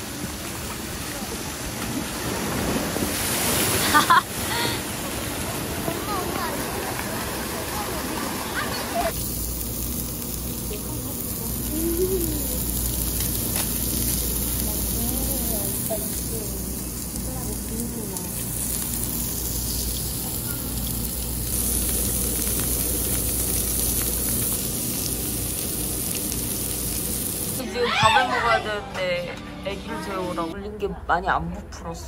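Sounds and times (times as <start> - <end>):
faint voices: 4.5 - 9.2, 10.6 - 13.0
meat sizzling on grill: 8.5 - 27.6.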